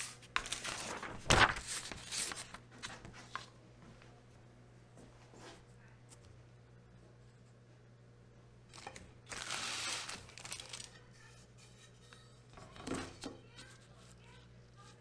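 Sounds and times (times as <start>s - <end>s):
paper rustling: 0.0s - 3.5s, 8.7s - 11.9s
low steady hum: 0.0s - 15.0s.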